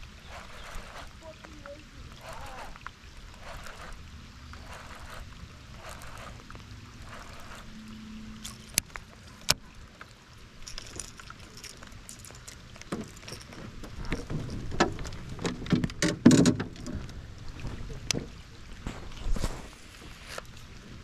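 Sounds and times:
light rain pattering: 0.9 - 7.6.

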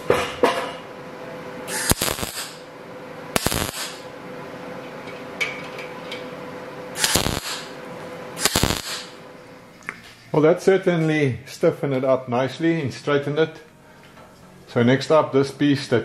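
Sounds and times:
faint steady hum: 0.0 - 16.0
welder arcing bursts: 1.7 - 2.7, 3.3 - 4.1, 7.0 - 7.8, 8.4 - 9.2.

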